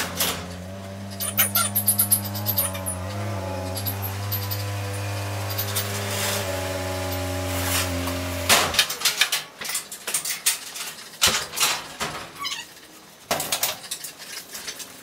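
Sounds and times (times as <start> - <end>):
car engine idling: 0.0 - 8.6.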